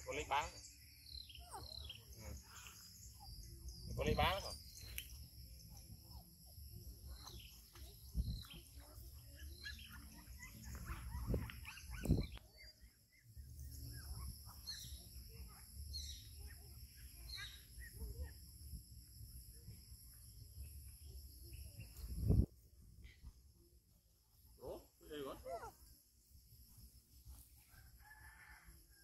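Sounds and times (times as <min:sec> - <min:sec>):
insects trilling: 0:00.0 - 0:29.0
young monkeys squeaking: 0:01.1 - 0:18.5.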